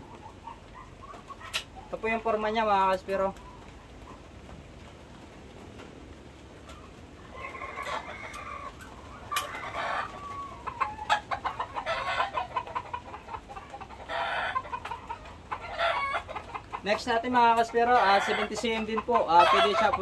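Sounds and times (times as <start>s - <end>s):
chickens clucking: 0.0s - 20.0s
rooster crowing: 7.3s - 11.0s.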